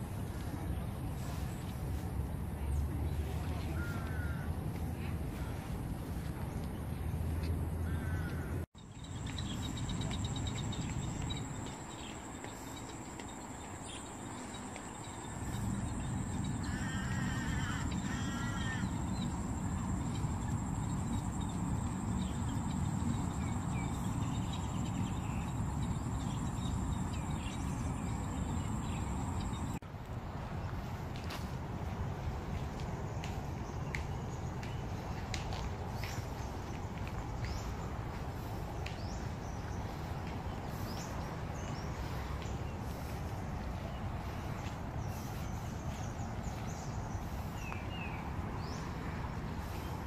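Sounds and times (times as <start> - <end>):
crow cawing: 7.8 - 8.5, 16.7 - 19.0.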